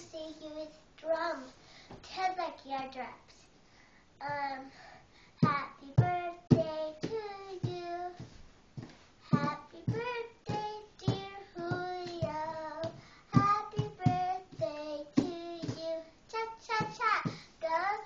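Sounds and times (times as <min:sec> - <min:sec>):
girl singing: 0:00.0 - 0:03.4, 0:04.2 - 0:08.4, 0:09.2 - 0:18.0
hands drumming on bench: 0:05.4 - 0:17.4.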